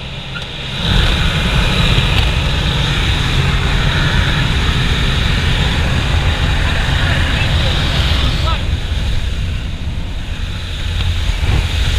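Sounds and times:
loud rush of wind: 0.0 - 11.9
plane engine and propeller drone: 0.0 - 11.9.

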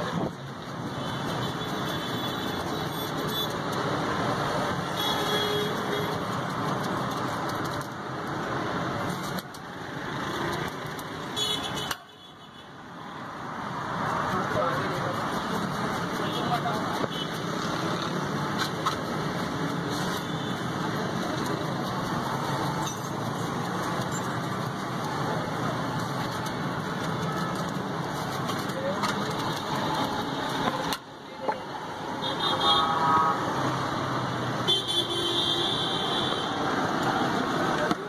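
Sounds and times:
street traffic: 0.0 - 38.0
vehicle horns honking: 11.4 - 12.6, 32.2 - 33.5, 34.6 - 36.6
background chatter: 14.0 - 32.2.

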